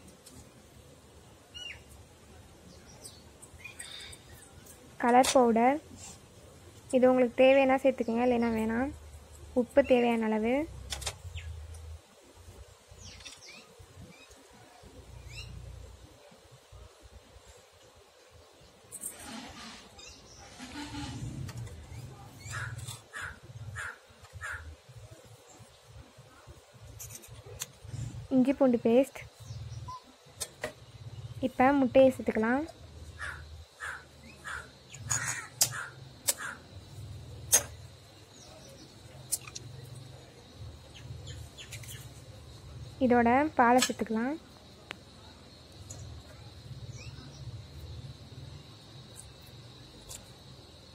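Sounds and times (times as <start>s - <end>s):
birds chirping: 19.6s - 24.8s, 33.2s - 36.7s
crow cawing: 22.5s - 24.7s, 33.2s - 36.6s.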